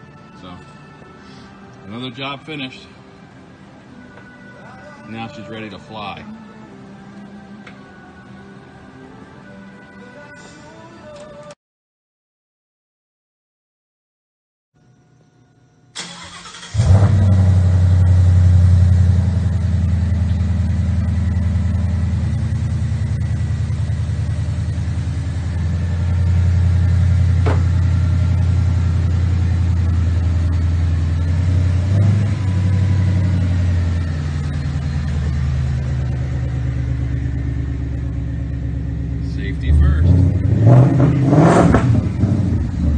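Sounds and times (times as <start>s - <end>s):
engine starter cranking: 16.0s - 17.4s
car engine idling loudly: 16.8s - 40.6s.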